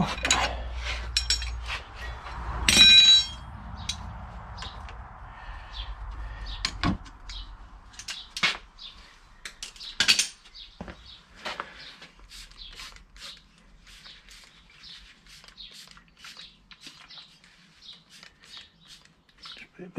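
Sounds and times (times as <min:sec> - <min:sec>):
tools clinking on metal plate: 0:00.0 - 0:01.6
ringing metal clank: 0:02.7 - 0:03.5.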